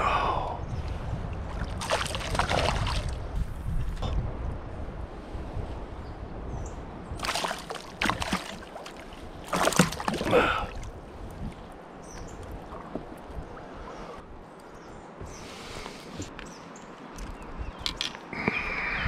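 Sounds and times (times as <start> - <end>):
fish splashing at surface: 7.2 - 8.6, 9.5 - 10.4.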